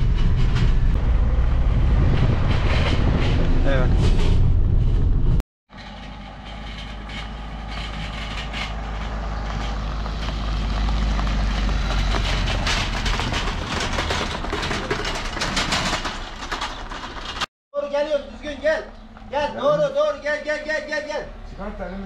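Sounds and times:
engine clicks and knocks: 5.7 - 17.5.

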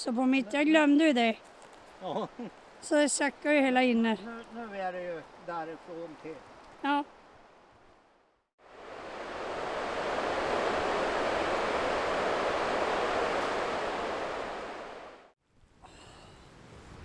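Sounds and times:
river rapids rushing: 8.8 - 15.2.

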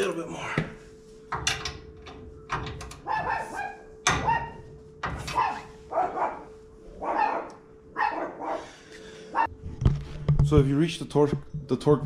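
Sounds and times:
dog barking: 3.0 - 4.6, 5.2 - 9.5.

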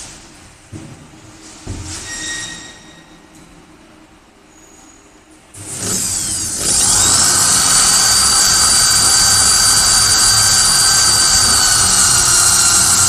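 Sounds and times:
electric drill with hole saw: 5.6 - 13.0.

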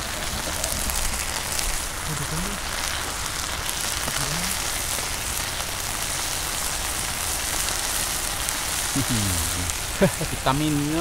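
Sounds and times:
food bubbling and sizzling in wok: 0.0 - 11.0.

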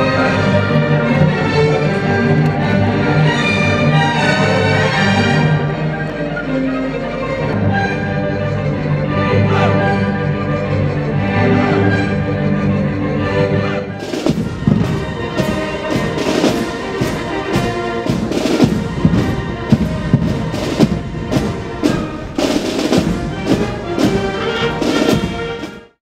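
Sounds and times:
brass instruments: 0.0 - 26.0
military band playing: 0.0 - 26.0
snare drums: 14.0 - 26.0.

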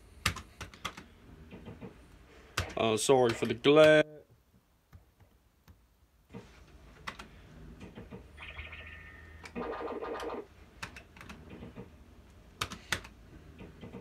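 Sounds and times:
electronic beeps: 8.4 - 10.4
loud electronic tone: 8.4 - 10.5.

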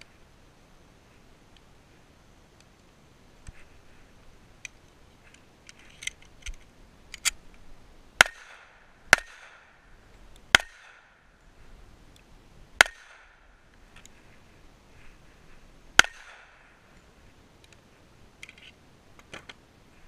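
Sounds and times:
pistol handling clicks: 5.7 - 7.6
pistol shots: 8.2 - 9.8.

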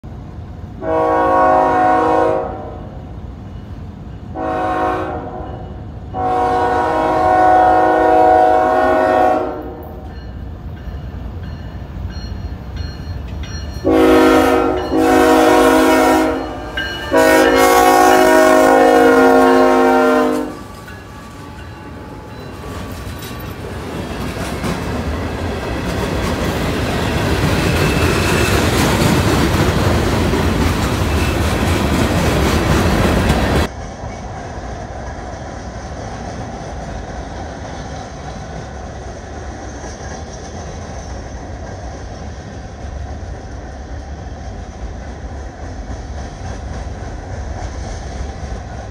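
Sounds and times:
freight train rumble: 0.0 - 48.9
locomotive air horn blasts: 0.8 - 2.8, 4.4 - 5.6, 6.2 - 10.0, 13.8 - 22.3
train wheel clatter: 20.3 - 48.9.

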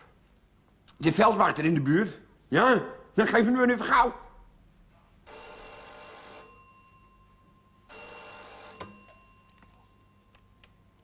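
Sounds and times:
telephone bell ringing: 5.3 - 11.0.

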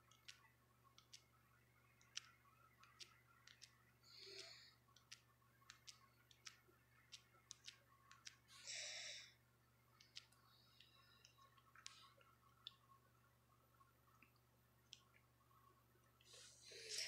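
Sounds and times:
fingertip tapping touchscreen: 0.0 - 1.4, 2.0 - 8.5, 10.0 - 12.1.

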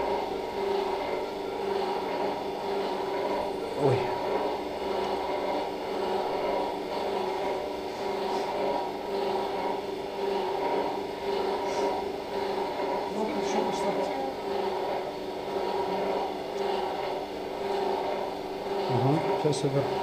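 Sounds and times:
mechanical equipment hum: 0.0 - 20.0.

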